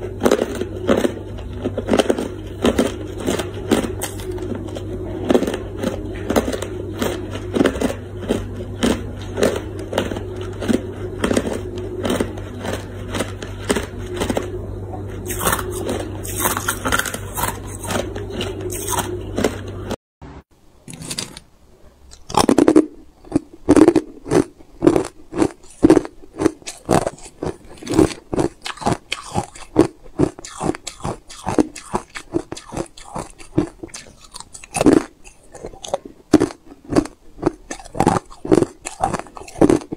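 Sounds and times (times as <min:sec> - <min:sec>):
low hum: 0:00.0 - 0:25.3
ice crunching in mouth: 0:00.2 - 0:14.6, 0:15.2 - 0:19.7, 0:22.1 - 0:39.9.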